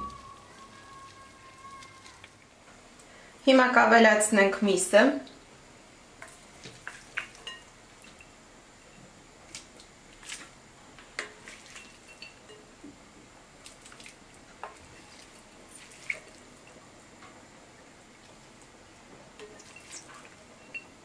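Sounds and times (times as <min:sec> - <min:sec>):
soft wet plops and drips: 0:06.2 - 0:08.2, 0:11.2 - 0:12.4, 0:13.6 - 0:16.8.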